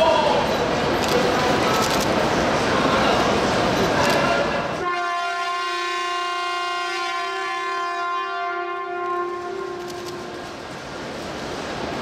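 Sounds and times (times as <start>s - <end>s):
train horn blast: 4.8s - 10.6s.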